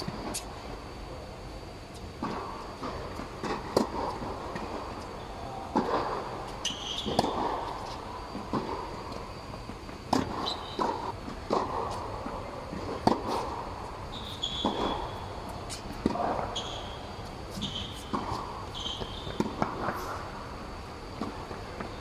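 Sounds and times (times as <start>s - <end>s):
tennis ball hit by racquets: 5.7s - 9.0s, 10.1s - 13.8s, 14.4s - 20.3s
sneakers squeaking on court: 6.5s - 8.0s, 10.3s - 11.1s, 14.1s - 20.2s.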